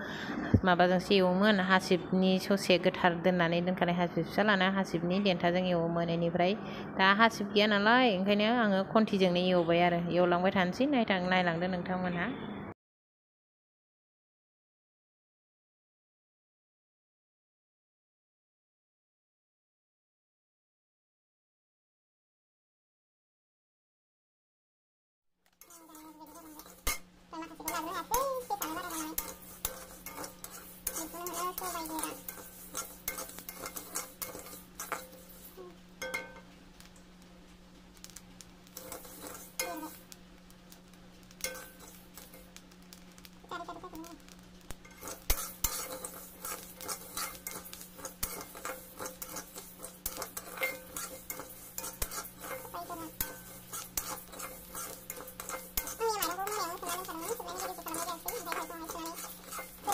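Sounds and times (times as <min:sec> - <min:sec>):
metal spatula scraping wok: 0:25.6 - 0:36.9, 0:38.0 - 0:59.9
rice grains rattling in pan: 0:25.6 - 0:59.9
steady low hum: 0:25.6 - 0:59.9.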